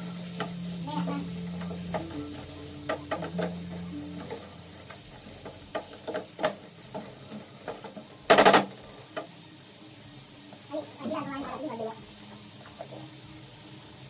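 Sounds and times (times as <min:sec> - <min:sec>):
light sizzle: 0:00.0 - 0:14.0
spatula scraping and tapping a pan: 0:00.2 - 0:09.4.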